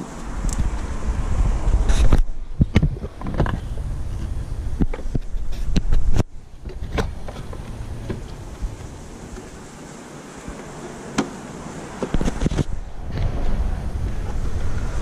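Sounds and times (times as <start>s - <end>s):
low rumble: 12.6s - 15.0s.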